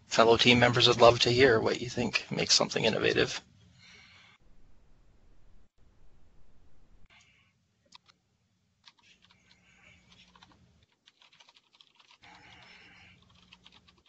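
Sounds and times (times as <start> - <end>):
typing on computer keyboard: 8.8 - 14.0.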